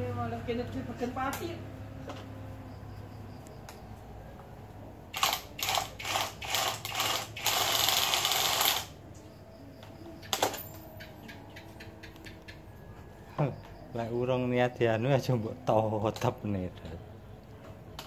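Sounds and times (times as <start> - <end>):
cordless drill bursts: 5.2 - 8.9.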